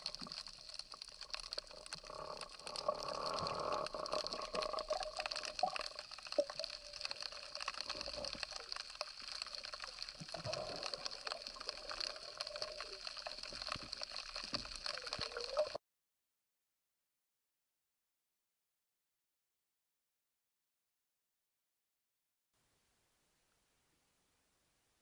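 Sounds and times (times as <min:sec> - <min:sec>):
underwater clicks and hiss: 0:00.0 - 0:15.8.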